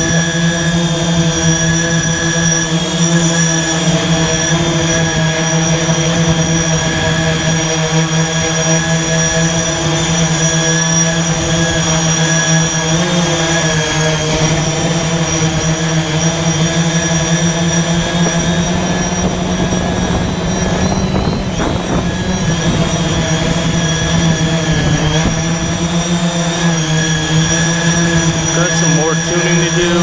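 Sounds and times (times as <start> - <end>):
drone motors whining: 0.0 - 30.0.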